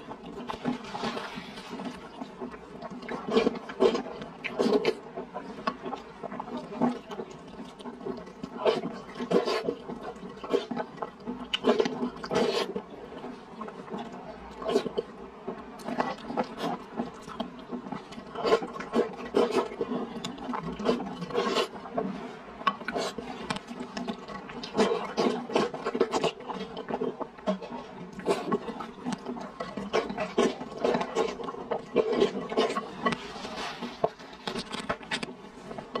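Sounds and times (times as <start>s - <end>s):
chewing mouth clicks and smacks: 0.1s - 15.1s, 15.8s - 33.3s, 34.0s - 36.0s
person slurping noodles: 7.6s - 12.9s, 15.8s - 34.4s.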